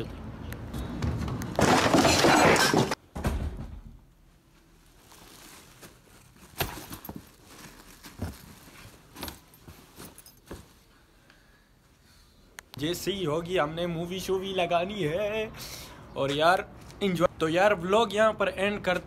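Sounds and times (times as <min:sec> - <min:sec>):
clothes rustling: 0:04.2 - 0:11.1.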